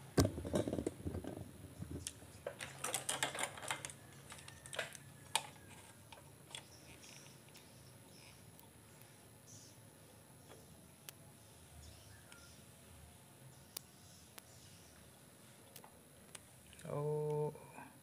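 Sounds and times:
wires and test lead clicking: 2.0s - 9.1s.

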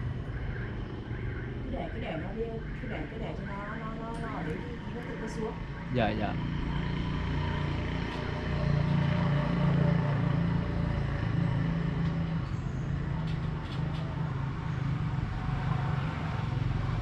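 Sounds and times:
low engine rumble: 0.0s - 17.0s.

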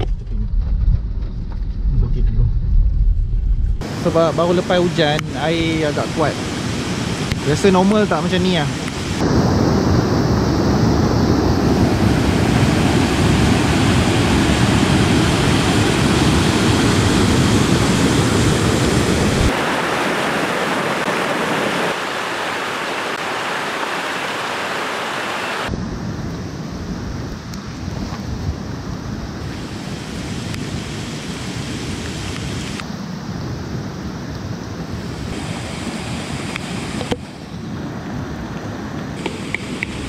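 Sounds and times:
river rushing over rocks: 12.6s - 25.7s.

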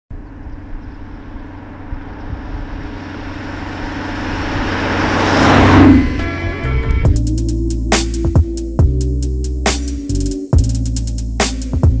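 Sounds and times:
car engine approaching: 0.1s - 12.0s
road rush: 0.1s - 12.0s.

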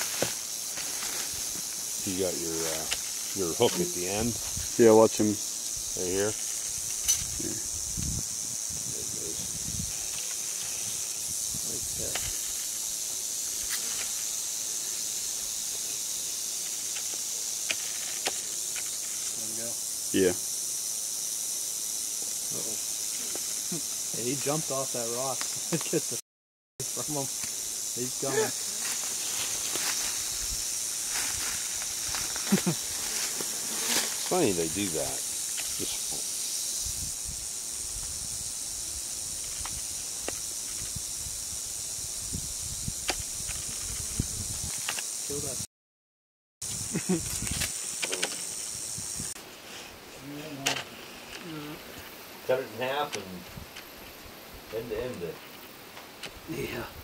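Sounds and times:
rattlesnake rattling: 0.0s - 26.2s, 26.8s - 45.6s, 46.6s - 56.9s.

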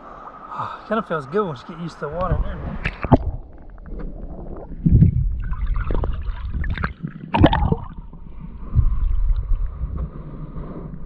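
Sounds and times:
muffled underwater water sloshing: 0.0s - 11.0s
water splashes: 0.0s - 11.0s
low rumble: 2.3s - 11.0s.

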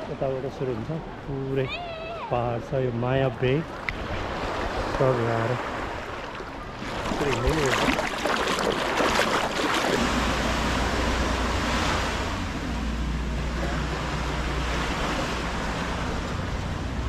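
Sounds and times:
small waves washing on sand: 1.7s - 17.0s
foot splashing in shallow water: 3.7s - 12.2s.

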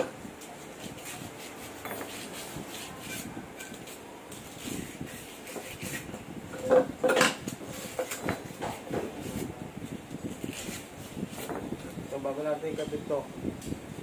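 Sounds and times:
screwdriver clinking on metal parts: 1.8s - 2.3s.

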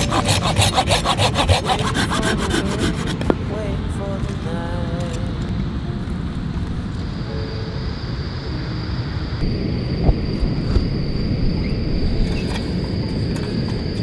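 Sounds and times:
wind on microphone: 0.0s - 14.0s
insect trilling: 6.9s - 14.0s.

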